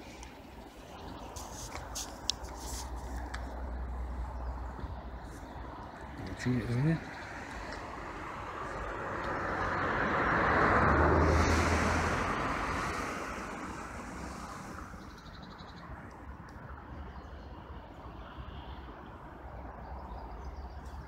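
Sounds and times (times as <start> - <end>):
vehicle driving past: 6.4 - 15.2.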